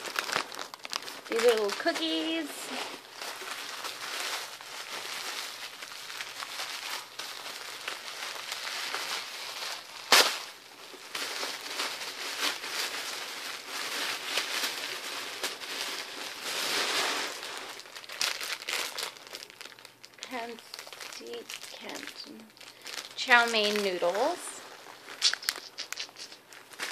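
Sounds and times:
paper wrapping crinkling: 0:00.0 - 0:26.9
loud sharp snap: 0:10.1 - 0:10.4.

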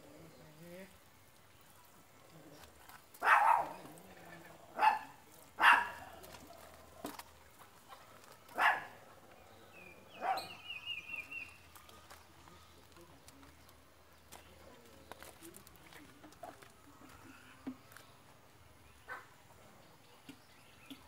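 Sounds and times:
dog barking: 0:03.2 - 0:03.8, 0:04.8 - 0:06.1, 0:08.6 - 0:09.0, 0:10.2 - 0:10.6, 0:19.1 - 0:19.3.

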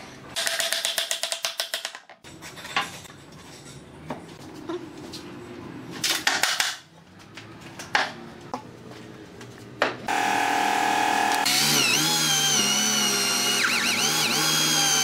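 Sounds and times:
electric drill boring into wood: 0:10.1 - 0:15.0.

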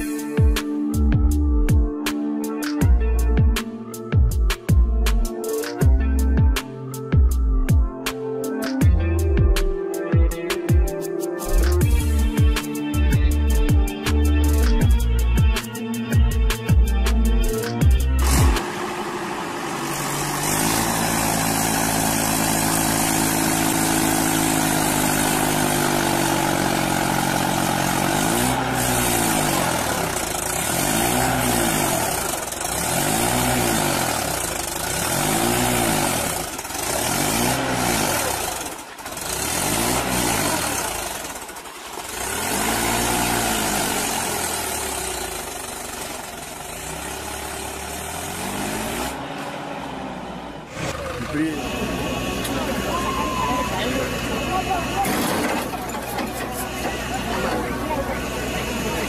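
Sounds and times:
tractor engine straining: 0:17.2 - 0:59.0.

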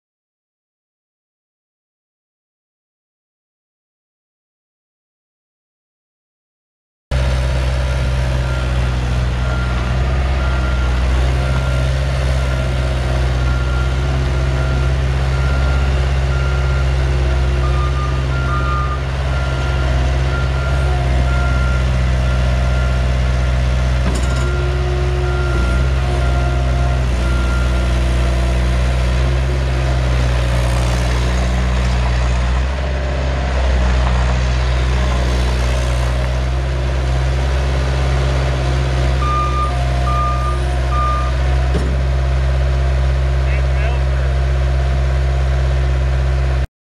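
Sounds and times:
diesel engine running: 0:07.1 - 0:46.7
backup alarm beeping: 0:39.2 - 0:41.4.

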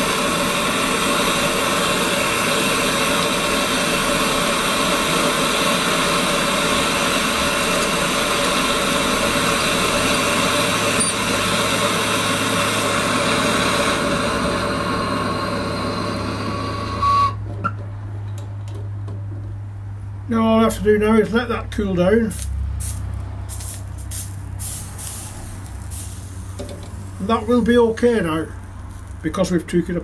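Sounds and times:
torch shut-off knock: 0:00.0 - 0:17.0, 0:24.6 - 0:27.1
blowtorch hissing: 0:00.0 - 0:17.3, 0:22.3 - 0:29.4.

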